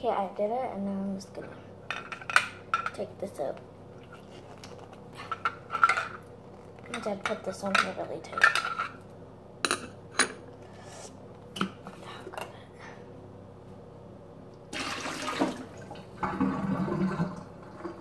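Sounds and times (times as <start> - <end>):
liquid pouring into sink: 14.7 - 18.0.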